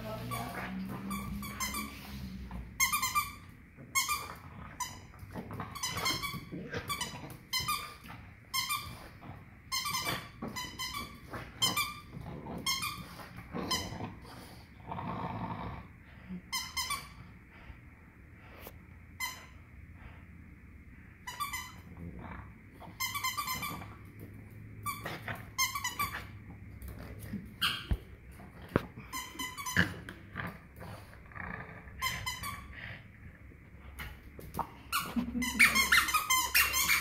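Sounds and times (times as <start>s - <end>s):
squeaky dog toy squeaking: 2.8s - 5.1s, 24.8s - 26.3s, 34.9s - 37.0s.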